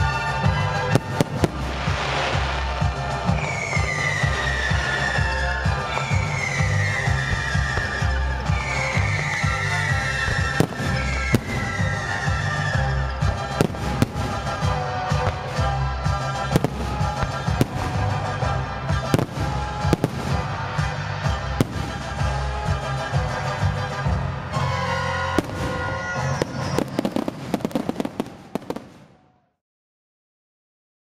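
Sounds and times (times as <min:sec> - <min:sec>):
firework shells bursting: 0:00.9 - 0:12.8, 0:13.4 - 0:23.0.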